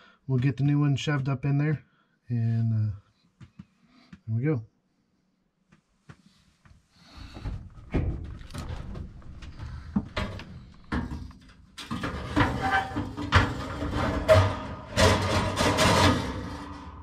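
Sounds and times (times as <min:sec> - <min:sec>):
sheet metal scraping and clattering: 0:07.4 - 0:17.0.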